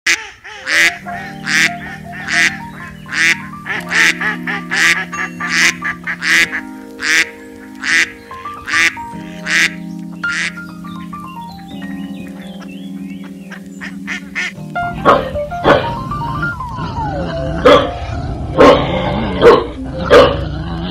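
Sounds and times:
duck quacking: 0.1s - 10.6s, 12.3s - 16.5s
background music with held notes: 0.4s - 20.9s.

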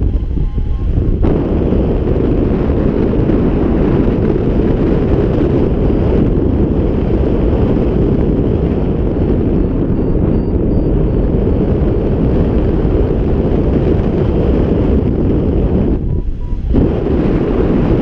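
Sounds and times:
wind rushing over microphone: 0.0s - 18.0s
faint variometer beeps: 0.1s - 1.2s, 9.1s - 12.1s, 15.9s - 16.8s.

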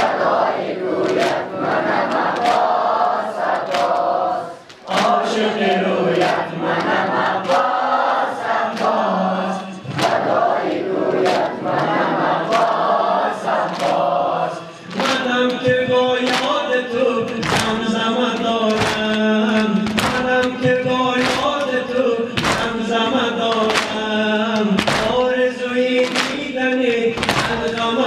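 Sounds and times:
men chanting in unison: 0.0s - 28.0s
chest-beating slaps: 17.3s - 17.9s, 18.6s - 21.8s, 22.4s - 22.8s, 23.4s - 25.2s, 26.0s - 26.5s, 27.2s - 27.9s.

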